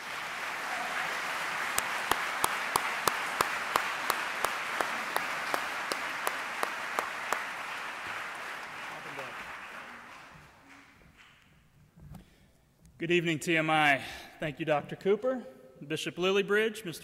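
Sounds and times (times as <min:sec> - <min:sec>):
audience applauding: 0:00.0 - 0:11.5
person clapping loudly: 0:00.0 - 0:11.5.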